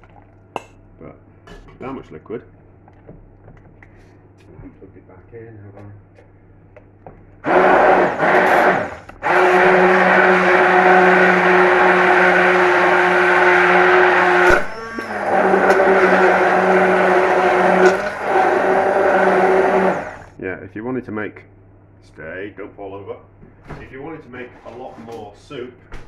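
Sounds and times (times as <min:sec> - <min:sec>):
electric blender motor: 0:07.4 - 0:20.4.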